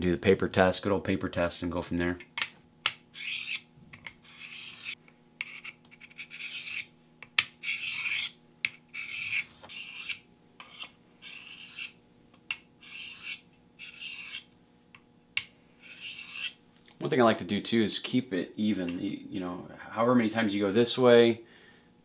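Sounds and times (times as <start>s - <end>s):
knife rasping on sharpening plate: 3.2s - 3.6s, 4.2s - 6.9s, 7.6s - 12.0s, 12.8s - 14.5s, 15.8s - 16.6s.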